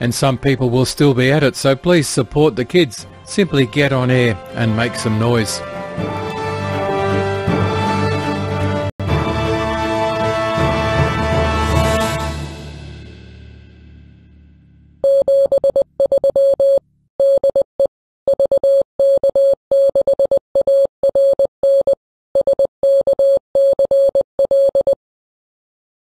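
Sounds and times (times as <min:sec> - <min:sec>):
theme music: 0:00.0 - 0:15.0
morse code tone: 0:15.0 - 0:25.0.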